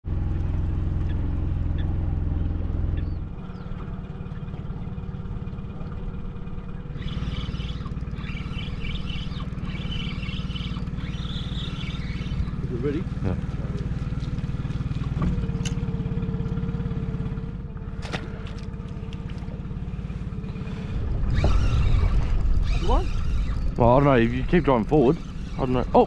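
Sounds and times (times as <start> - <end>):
outboard motor humming: 0.0 - 26.0
high chirping sounds: 7.0 - 12.6.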